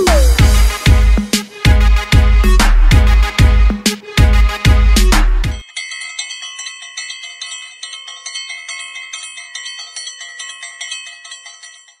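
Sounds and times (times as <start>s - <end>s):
high chiming bell tones: 5.6s - 12.0s.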